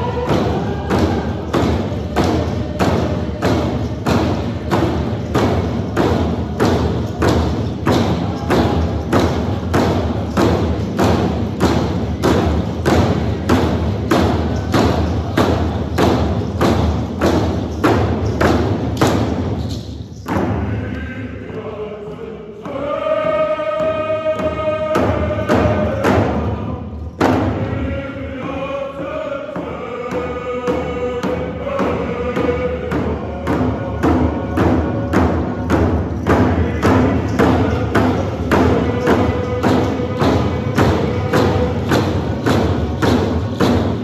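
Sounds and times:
hand drums beating: 0.0s - 19.7s, 29.6s - 44.0s
voices singing: 0.0s - 44.0s.

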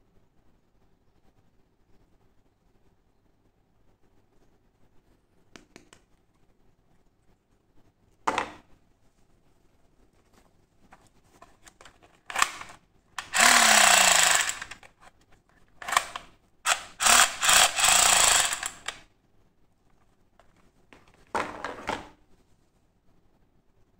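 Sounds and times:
toy gun buzzing rattle: 12.3s - 15.0s, 15.8s - 19.0s.

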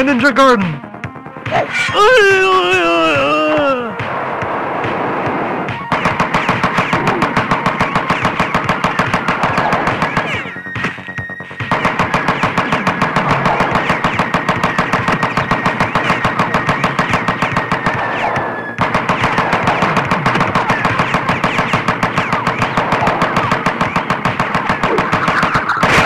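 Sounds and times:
automatic gunfire: 5.6s - 26.0s.

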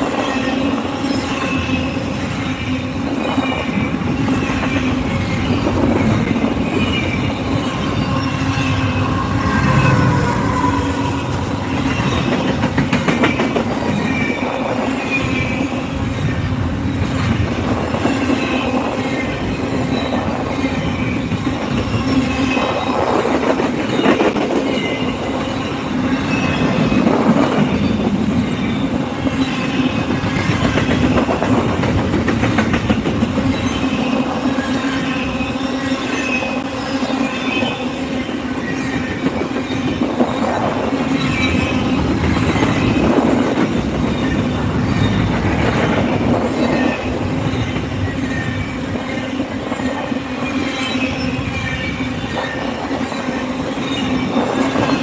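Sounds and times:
train wheels rumbling on rail: 0.0s - 55.0s
wheel squeals: 0.1s - 15.9s, 33.3s - 55.0s.

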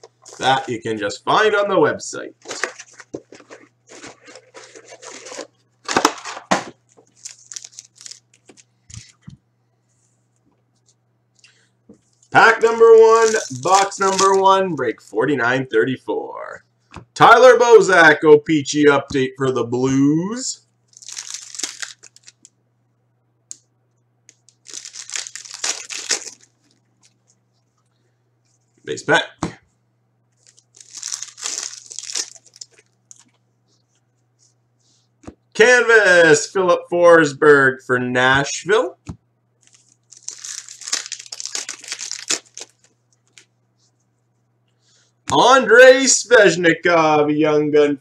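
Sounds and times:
foil packs crinkling: 0.0s - 0.8s, 2.4s - 9.2s, 12.5s - 14.5s, 20.9s - 22.5s, 24.4s - 27.3s, 30.4s - 33.4s, 39.6s - 43.5s.

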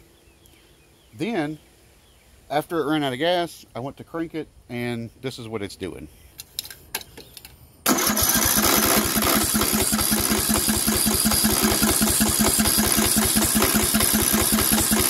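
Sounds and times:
mower engine cranking by starter: 7.9s - 15.0s.

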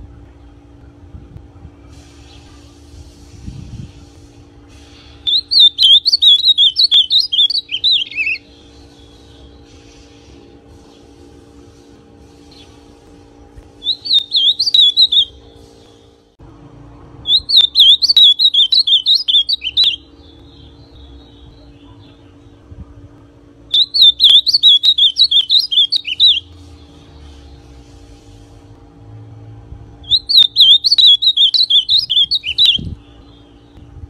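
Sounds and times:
bird singing warbling phrases: 5.2s - 9.6s, 13.8s - 15.4s, 17.2s - 22.6s, 23.7s - 26.5s, 30.0s - 33.9s.

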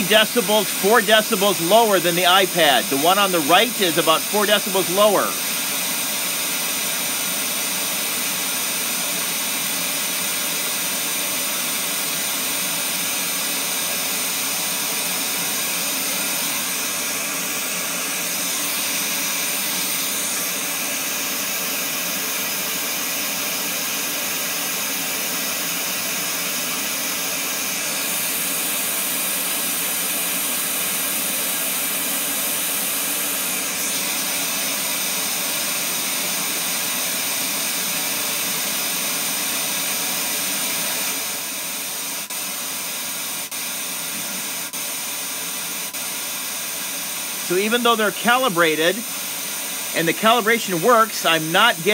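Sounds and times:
broadband test noise hiss: 0.0s - 5.5s, 47.4s - 51.9s.

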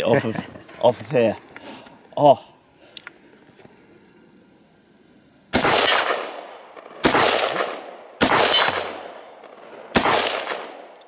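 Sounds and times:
rifle shots with echo: 5.5s - 11.0s.

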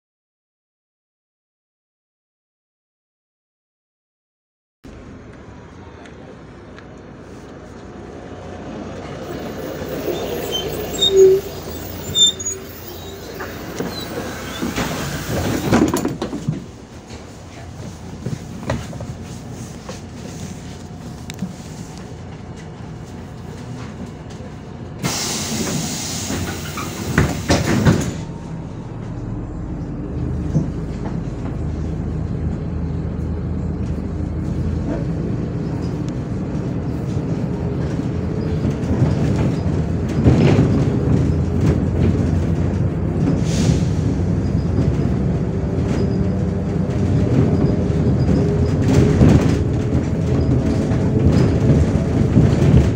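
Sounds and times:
bus diesel engine hum: 4.8s - 52.9s
compressed air hiss: 25.0s - 27.5s.

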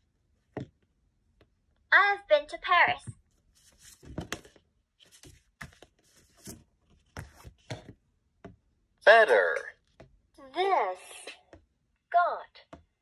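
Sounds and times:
cardboard cards rustling and clacking: 3.6s - 8.0s.

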